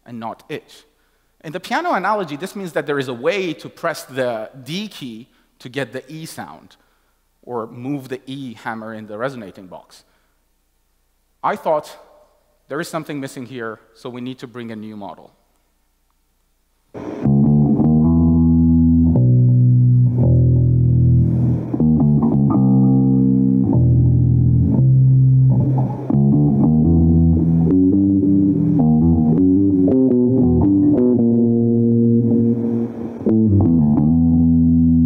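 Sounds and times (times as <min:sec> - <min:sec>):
electric bass guitar plucking: 0:17.0 - 0:35.0.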